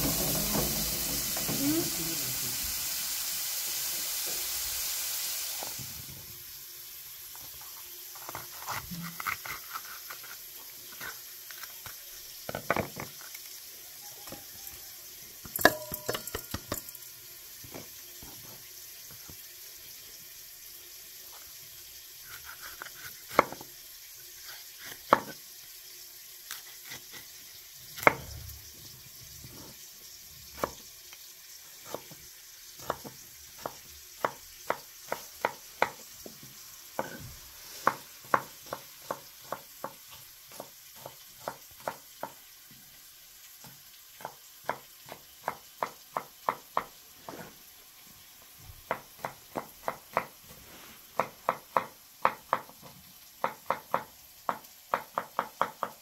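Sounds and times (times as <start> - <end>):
steady hiss: 0.0 - 8.2, 32.8 - 39.6, 46.8 - 54.6
utensils clinking and knocking: 15.6 - 17.0.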